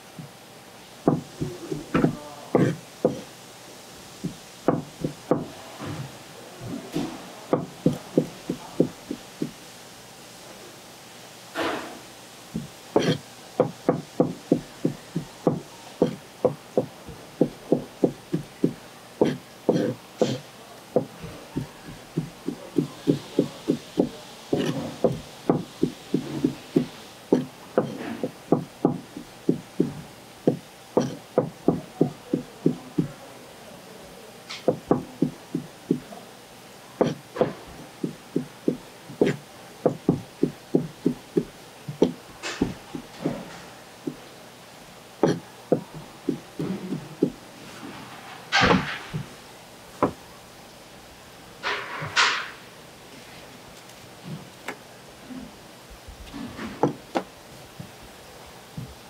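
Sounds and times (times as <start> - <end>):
knife chopping on cutting board: 1.1 - 3.2, 4.2 - 5.5, 7.5 - 9.6, 12.6 - 20.4, 21.0 - 33.1, 34.7 - 36.0, 37.0 - 43.4, 45.2 - 47.4.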